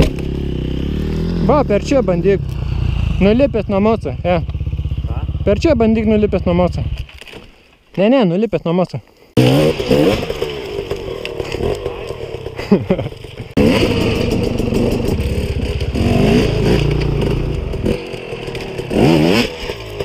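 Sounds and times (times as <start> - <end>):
dirt bike engine revving: 0.0 - 7.0, 9.4 - 20.0
bike clattering and scraping on wood: 6.9 - 8.0, 9.5 - 20.0.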